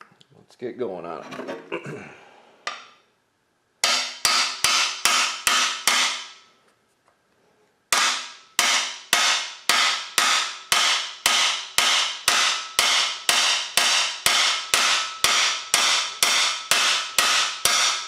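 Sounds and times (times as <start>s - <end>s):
hammer striking metal bar: 3.8s - 6.5s, 7.9s - 18.0s.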